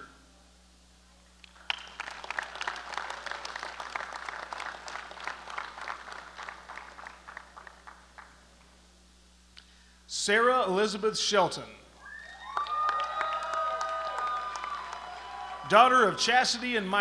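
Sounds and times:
crowd clapping: 1.4s - 8.7s, 12.4s - 16.2s.

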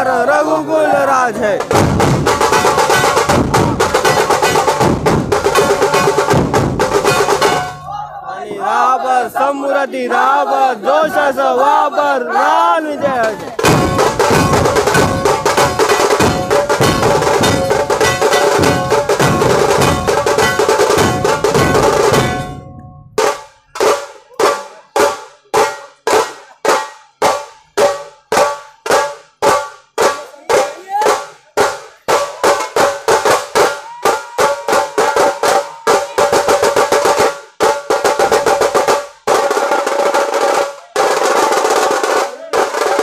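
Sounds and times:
drum ensemble beat: 1.1s - 8.0s, 13.0s - 43.0s
ringing drum strikes: 1.6s - 8.0s, 13.6s - 39.5s.

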